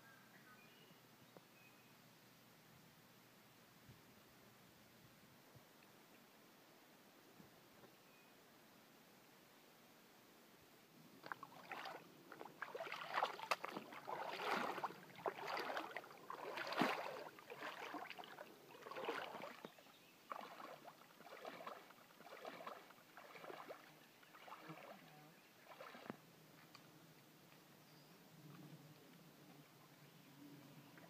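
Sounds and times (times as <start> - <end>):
water splashing and sloshing: 11.2 - 26.7
footsteps wading through stream: 11.2 - 26.8.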